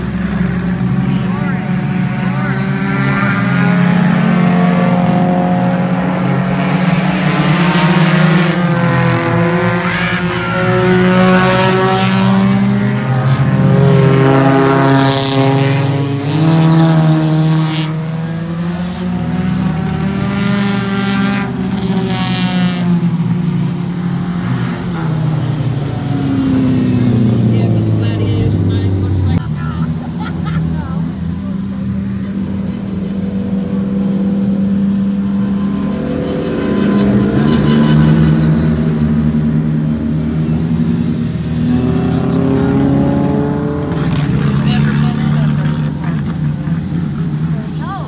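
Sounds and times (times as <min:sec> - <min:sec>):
race car engines racing: 0:00.0 - 0:48.0.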